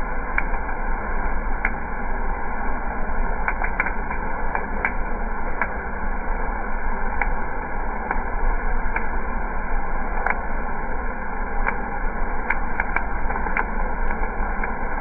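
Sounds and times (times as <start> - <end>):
low steady hum: 0.0 - 15.0
sharp clicks: 3.4 - 5.0, 5.6 - 5.8, 10.2 - 10.4, 12.4 - 14.8.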